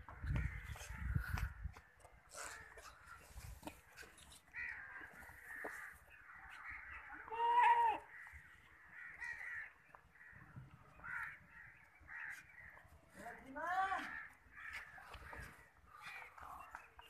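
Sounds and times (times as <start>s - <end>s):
crows cawing: 0.0s - 13.0s, 13.8s - 17.0s.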